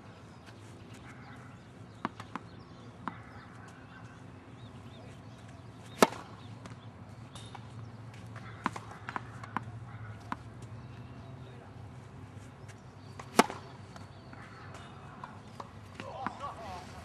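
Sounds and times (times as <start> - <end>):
tennis ball struck by racquet: 5.9 - 7.7, 8.4 - 10.5, 13.1 - 16.4.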